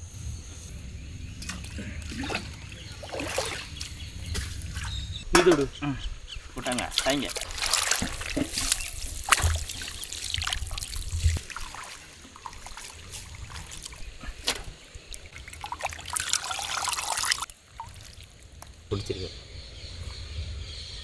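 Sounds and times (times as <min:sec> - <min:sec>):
water sloshing and splashing in bowl: 0:01.4 - 0:05.5, 0:06.6 - 0:18.8.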